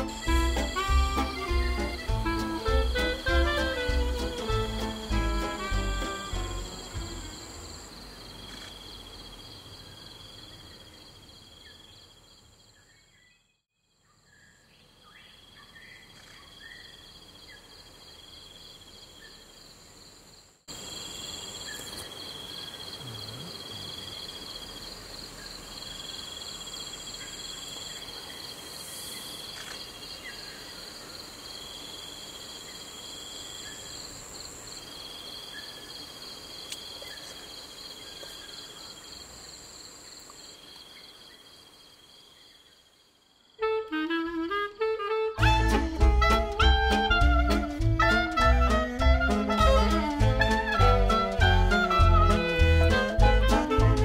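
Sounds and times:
pulsing high insect trill: 0.0 - 9.1
insects buzzing: 0.0 - 13.0, 14.7 - 54.0.

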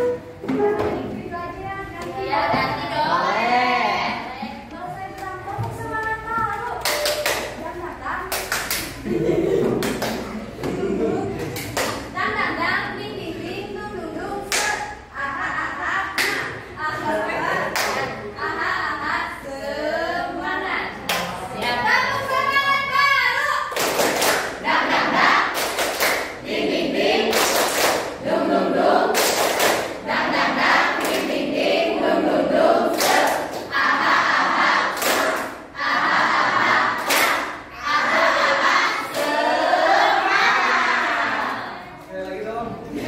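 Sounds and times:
hand claps: 6.5 - 7.6
group singing in unison: 24.3 - 42.0.

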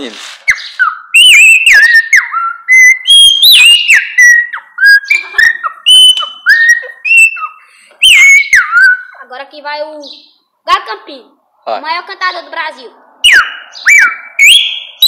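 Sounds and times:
boy whistling birdsong: 0.5 - 9.2, 13.2 - 15.0.

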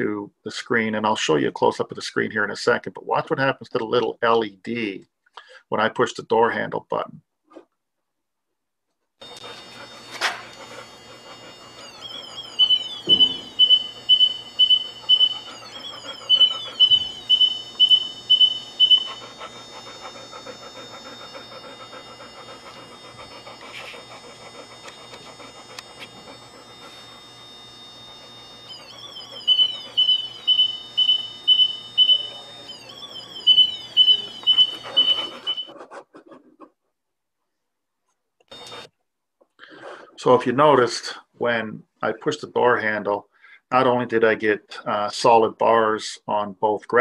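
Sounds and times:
electronic beeper beeping: 9.2 - 35.7
faint hum: 9.2 - 36.2
falling chirp: 11.8 - 19.3.

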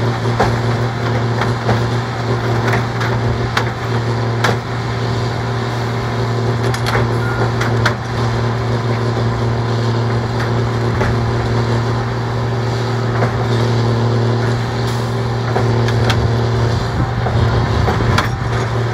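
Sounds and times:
machine engine humming: 0.0 - 18.9.

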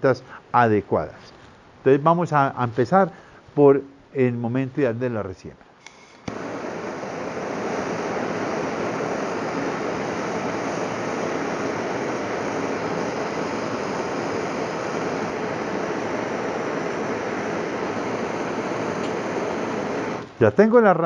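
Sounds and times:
gas torch hissing: 5.8 - 20.4.

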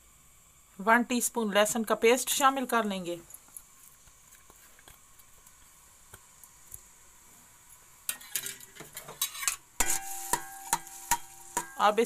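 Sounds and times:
metal spatula scraping steel pot: 8.1 - 12.0.

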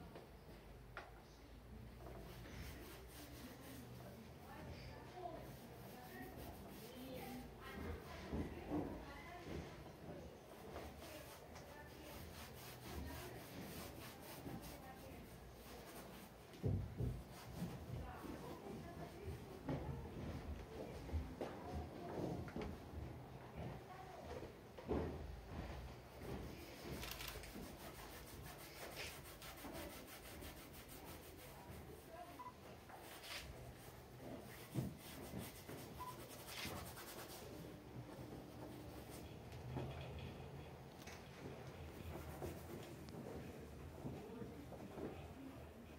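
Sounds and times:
paint rubbed onto canvas: 2.1 - 8.4, 10.6 - 19.3, 26.2 - 39.4, 41.9 - 43.1.

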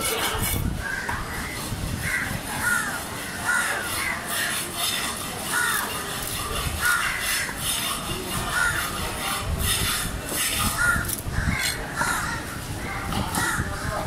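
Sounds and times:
crows cawing: 0.8 - 4.3, 5.4 - 5.9, 6.8 - 7.6, 10.7 - 13.9.

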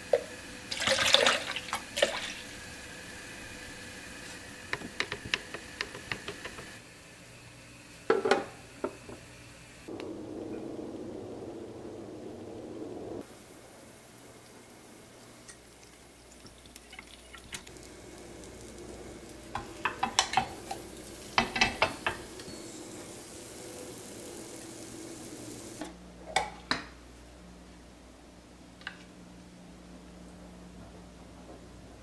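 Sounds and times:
faint steady hum: 0.0 - 32.0
utensils clinking against cookware: 19.6 - 20.8, 21.4 - 22.9.

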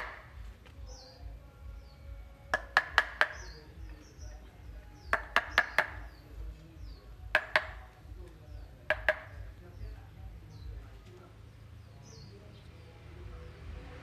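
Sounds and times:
mallet striking chisel: 0.0 - 0.3, 2.5 - 3.6, 5.1 - 6.1, 7.3 - 7.9, 8.8 - 9.4.

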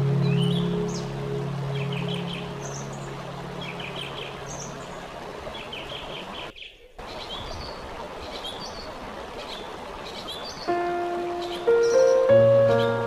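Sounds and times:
small birds chirping: 0.0 - 13.0
waterfall rushing: 0.0 - 13.0.

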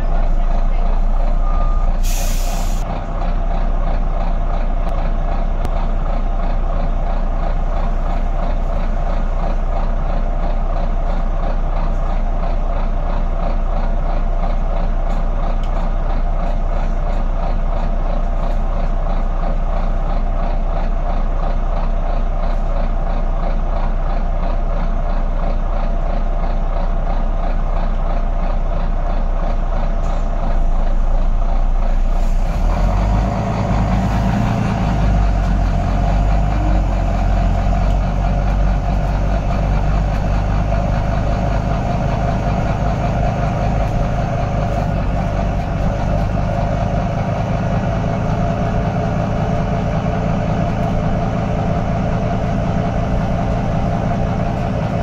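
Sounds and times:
diesel bus engine idling: 0.0 - 55.0
air hiss: 2.0 - 2.8.

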